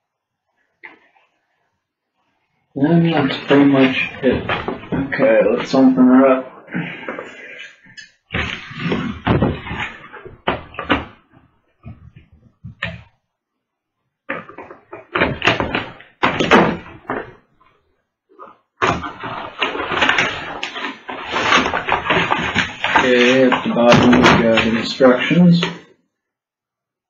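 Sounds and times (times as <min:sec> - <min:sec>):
cardboard and packaging rustling: 0:03.1 - 0:07.6, 0:08.3 - 0:12.7, 0:18.8 - 0:25.7.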